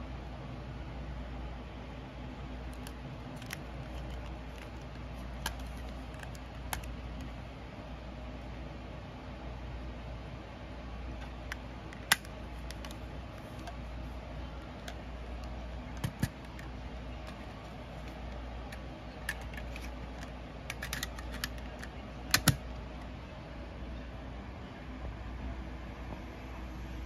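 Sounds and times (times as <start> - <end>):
faint low hum: 0.0 - 27.0
plastic clicks and taps: 16.0 - 22.6.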